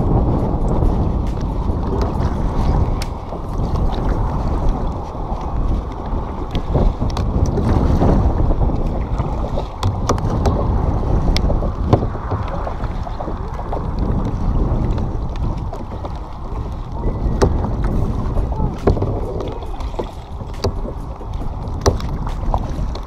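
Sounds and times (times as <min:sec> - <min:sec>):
paddle dipping through water: 0:00.0 - 0:23.0
sharp knocks and splashes: 0:00.0 - 0:23.0
wind rumble on microphone: 0:00.0 - 0:23.0.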